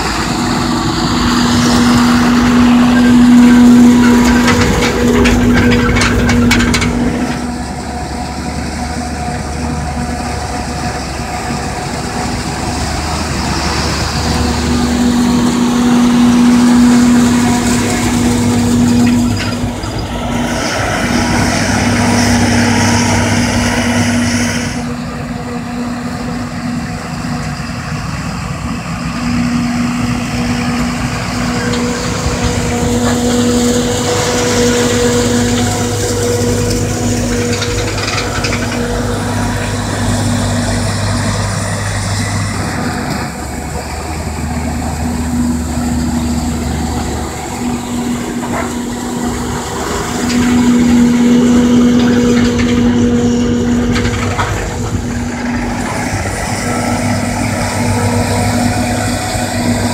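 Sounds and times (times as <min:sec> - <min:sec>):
diesel engines droning under load: 0:00.0 - 0:59.9.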